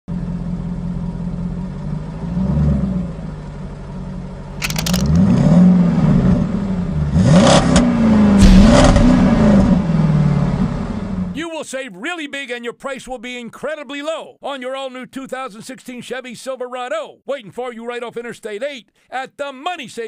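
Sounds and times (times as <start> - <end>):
sharp clattering: 4.5 - 5.4
truck engine revving: 4.5 - 11.4.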